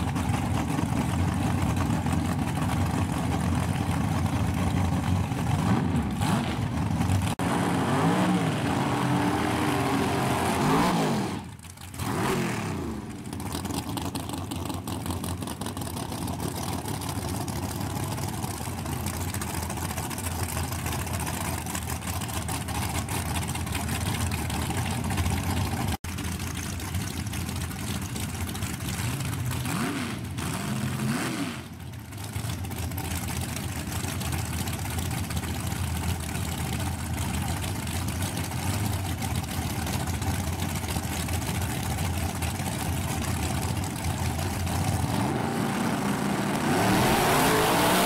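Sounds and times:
engines idling loudly: 0:00.0 - 0:48.0
race car engine revving: 0:05.4 - 0:13.8, 0:44.4 - 0:48.0.

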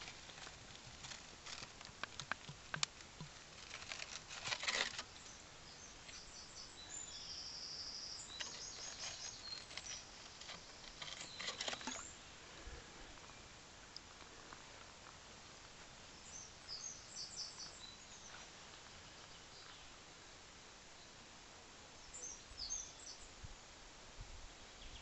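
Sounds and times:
crackly clicks: 0:00.0 - 0:05.1
bird singing: 0:04.9 - 0:12.4, 0:16.1 - 0:18.4, 0:22.0 - 0:23.4.

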